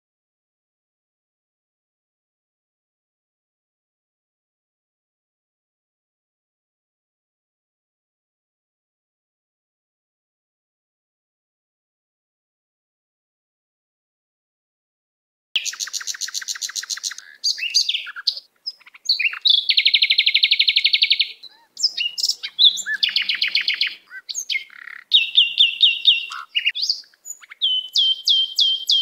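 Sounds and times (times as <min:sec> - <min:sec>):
bird song with trills and chirps: 0:15.6 - 0:29.0.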